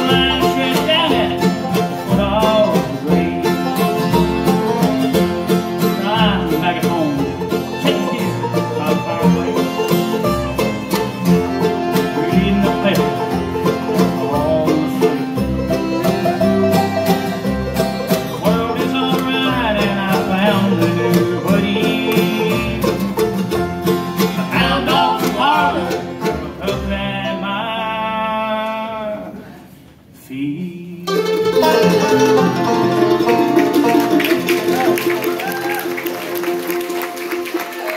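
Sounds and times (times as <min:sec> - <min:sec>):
person singing: 0:00.0 - 0:11.2, 0:11.8 - 0:15.4, 0:18.3 - 0:23.0, 0:24.4 - 0:29.0, 0:30.6 - 0:32.6
banjo rolls: 0:00.0 - 0:28.1, 0:31.0 - 0:37.9
upright bass: 0:00.0 - 0:29.4, 0:30.4 - 0:37.9
acoustic guitar: 0:00.0 - 0:37.9.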